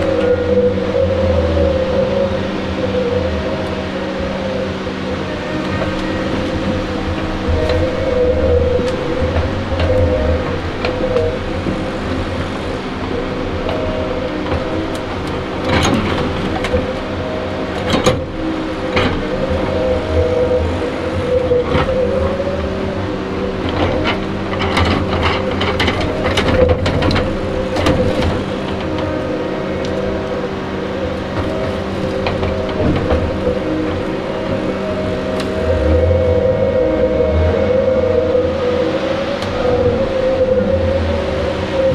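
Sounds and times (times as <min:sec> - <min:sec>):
diesel engine under hydraulic load: 0:00.0 - 0:41.9.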